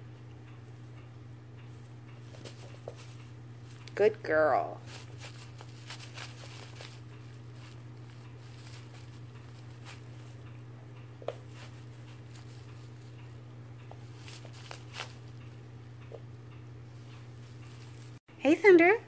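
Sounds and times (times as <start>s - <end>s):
steady low hum: 0.0s - 19.0s
cat pawing plush toy rustles: 1.8s - 4.0s, 4.8s - 15.5s, 16.8s - 18.2s.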